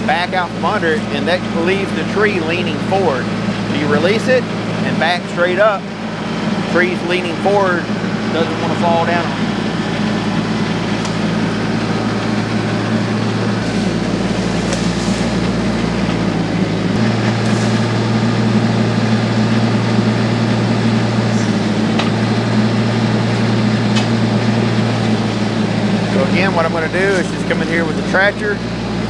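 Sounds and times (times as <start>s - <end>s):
tractor diesel engine running: 0.0s - 29.0s.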